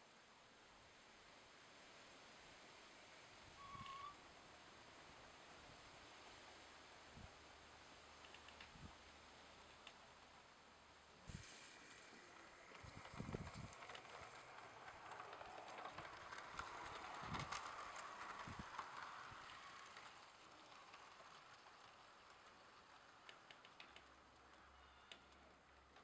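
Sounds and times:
model train rolling on track: 0.2 - 26.0
light clicks: 8.2 - 8.8.

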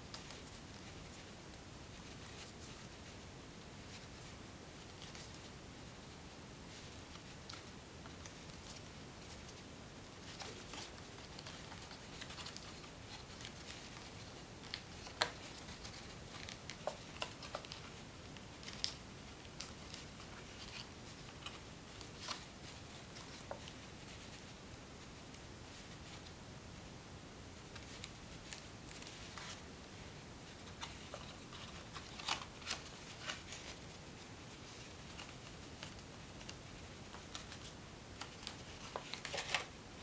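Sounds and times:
paper crinkling: 10.2 - 24.6, 27.6 - 40.0.

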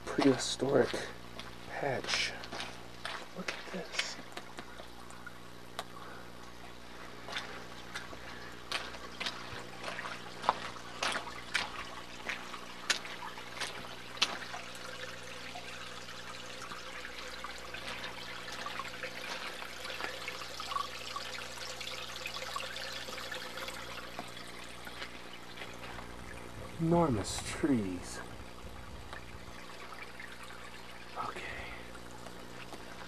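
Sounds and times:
water trickling over rocks: 0.0 - 33.0.

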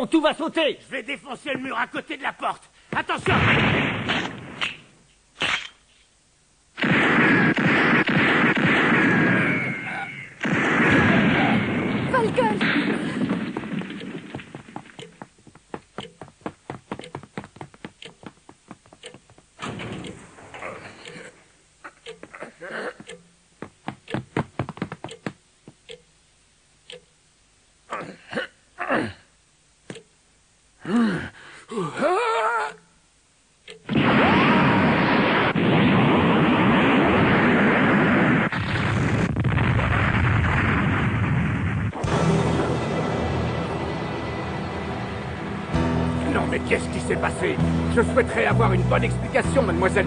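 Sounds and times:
short sharp snap: 5.4 - 5.8
man grunting and gasping: 27.9 - 29.3, 30.8 - 32.8.

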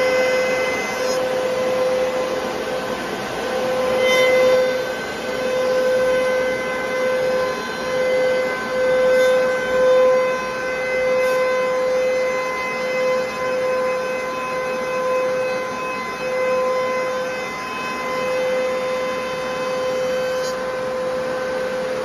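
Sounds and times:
cutter heads whining: 0.0 - 22.0.

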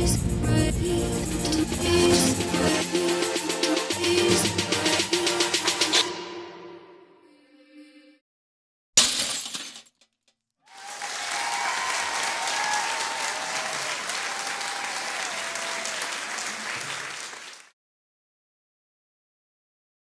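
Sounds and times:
glass shattering underfoot: 9.0 - 10.1
guests shouting: 10.7 - 16.1
guests clapping: 10.7 - 17.8.

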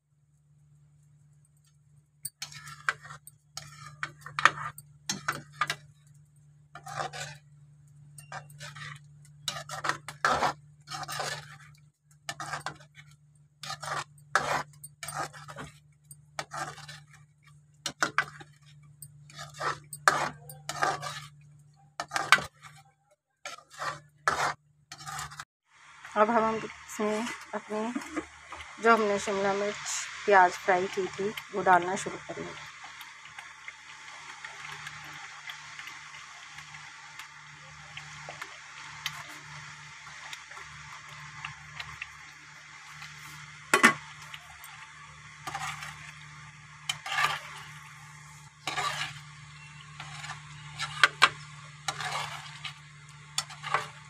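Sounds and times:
metal spoon scraping a pot: 1.6 - 25.4, 26.3 - 30.2, 30.8 - 54.0.

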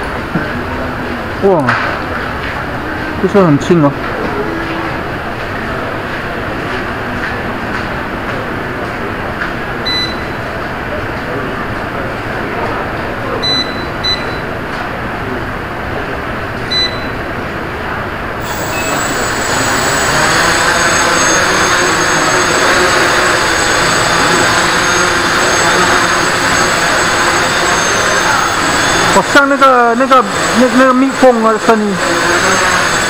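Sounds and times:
short high beeps: 9.8 - 10.5, 13.4 - 14.5, 16.7 - 17.2, 18.4 - 29.4
drone propellers buzzing: 18.4 - 33.0.

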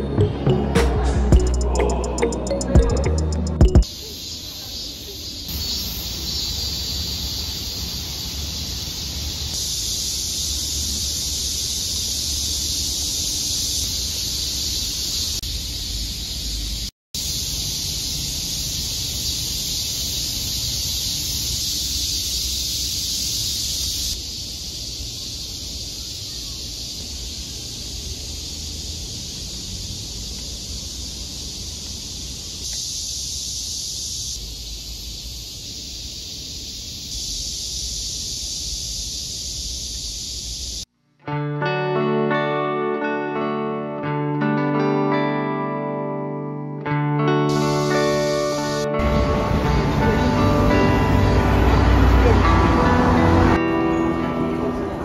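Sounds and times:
cicadas droning: 1.4 - 40.9, 47.5 - 55.0.

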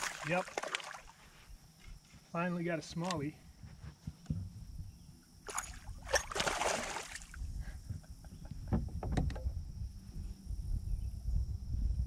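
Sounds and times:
water splashing: 0.0 - 1.2, 5.5 - 7.4
low wind rumble: 3.4 - 12.0.

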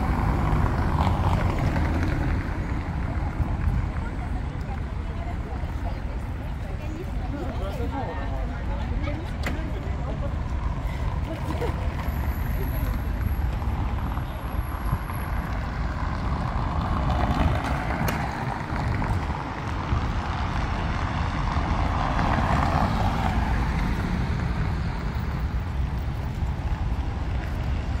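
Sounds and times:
traffic noise: 0.0 - 28.0
wind buffeting microphone: 14.7 - 28.0.

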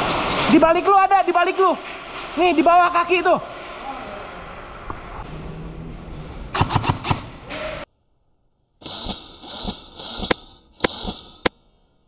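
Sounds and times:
airsoft guns firing: 6.6 - 7.4.

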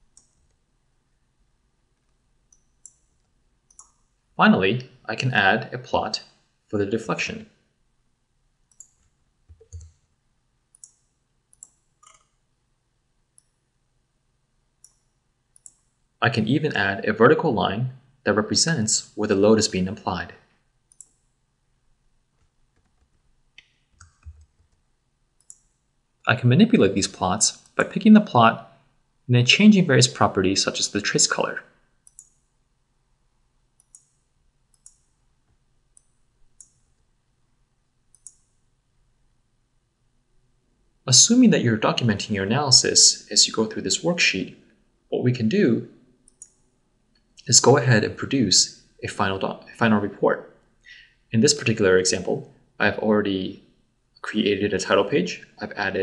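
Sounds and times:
computer mouse clicks: 0.1 - 0.6, 2.0 - 4.1, 8.7 - 10.0, 10.7 - 12.4, 14.8 - 16.0, 20.9 - 21.4, 22.4 - 24.8, 25.4 - 25.8, 32.0 - 32.5, 33.8 - 35.2, 35.9 - 37.0, 38.1 - 38.6, 46.2 - 46.6.

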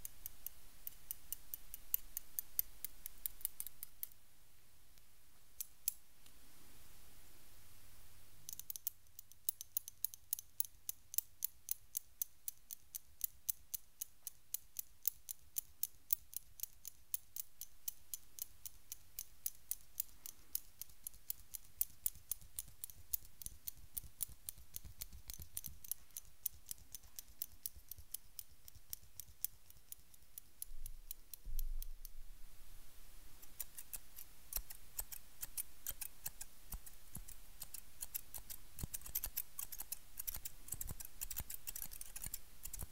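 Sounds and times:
scissors snipping: 19.7 - 31.2, 33.4 - 42.9.

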